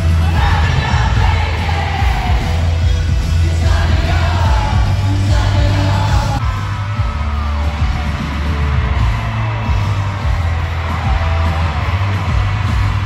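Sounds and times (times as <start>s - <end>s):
crowd yelling and cheering: 0.0s - 13.0s
live pop-rock band playing: 0.0s - 13.0s
person singing: 0.2s - 6.7s.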